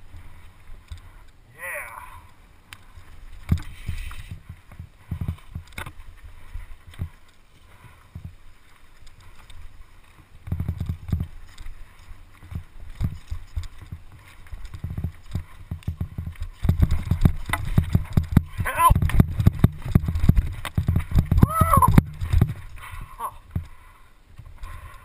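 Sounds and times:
steady tyre rumble: 0:00.0 - 0:25.0
bike knocks and rattles: 0:02.9 - 0:08.4, 0:09.3 - 0:23.8.

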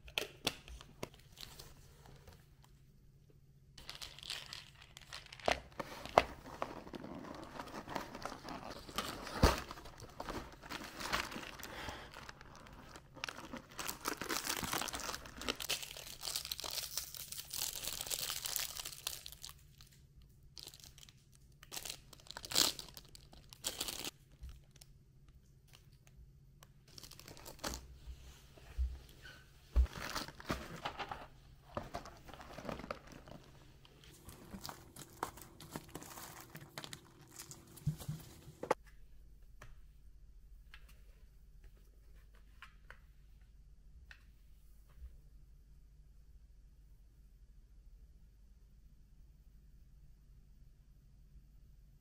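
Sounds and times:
crinkling and rustling: 0:00.1 - 0:02.8, 0:03.8 - 0:39.0.

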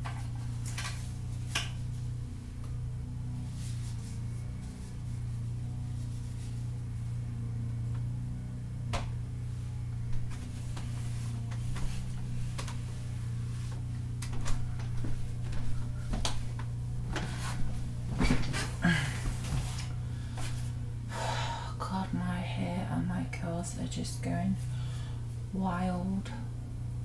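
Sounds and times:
low hum: 0:00.0 - 0:27.0.

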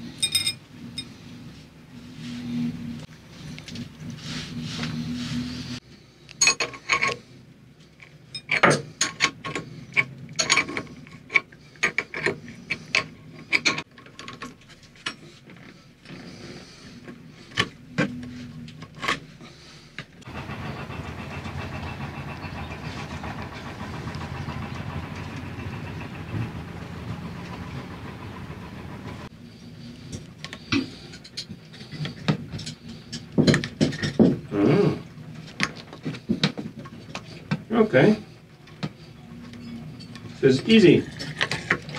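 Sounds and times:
metal parts clicking and clinking: 0:00.1 - 0:01.1, 0:06.3 - 0:07.2, 0:08.0 - 0:15.7.

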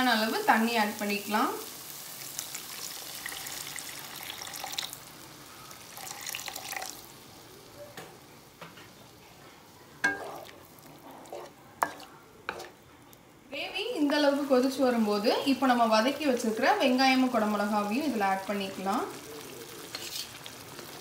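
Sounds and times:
water pouring into a pan: 0:02.3 - 0:05.2, 0:05.8 - 0:07.2.

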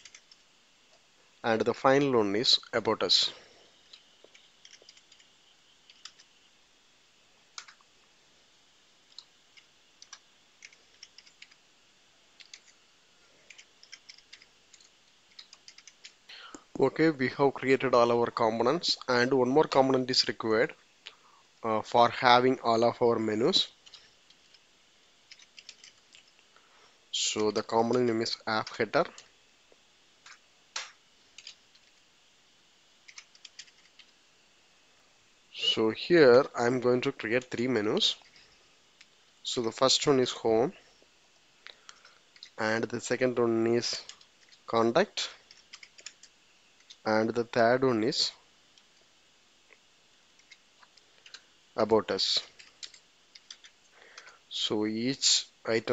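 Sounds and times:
keyboard typing: 0:00.0 - 0:00.4, 0:03.9 - 0:05.3, 0:05.9 - 0:06.3, 0:07.6 - 0:07.8, 0:09.1 - 0:11.6, 0:12.4 - 0:12.8, 0:13.5 - 0:16.2, 0:25.3 - 0:26.3, 0:33.1 - 0:34.1, 0:45.5 - 0:47.0, 0:52.6 - 0:54.3.

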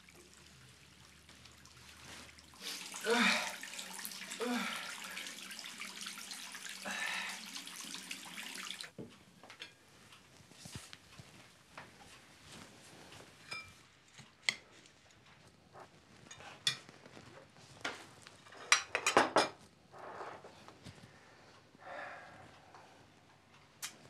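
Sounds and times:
crockery and cutlery clinking: 0:13.4 - 0:14.6, 0:18.4 - 0:19.6.

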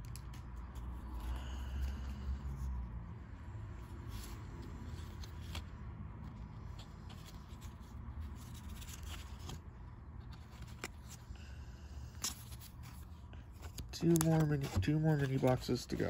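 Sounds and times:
cards sliding and clicking: 0:04.0 - 0:11.3, 0:12.1 - 0:16.0.

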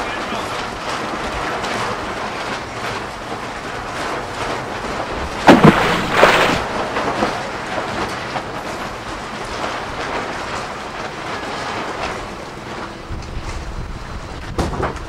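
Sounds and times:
wind buffeting microphone: 0:13.0 - 0:15.0.

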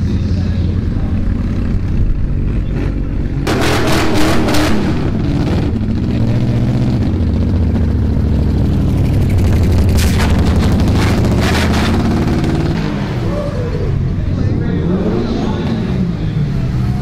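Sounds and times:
car engine revving: 0:00.0 - 0:17.0
pickup engine low rumble: 0:00.0 - 0:17.0
exhaust popping: 0:00.8 - 0:13.0.

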